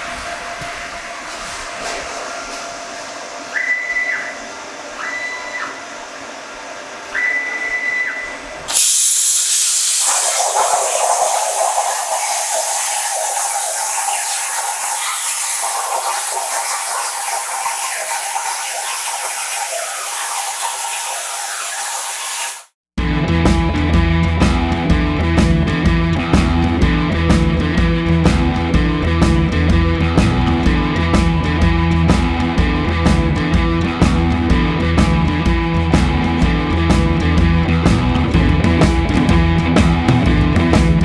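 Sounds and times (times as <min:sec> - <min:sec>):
short high whines: 0:07.1 - 0:22.7
plasma cutter arc hissing: 0:08.7 - 0:22.8.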